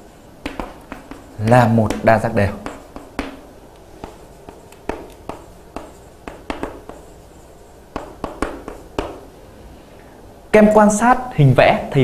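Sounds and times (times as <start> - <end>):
pen taps and strokes writing: 0.4 - 9.3.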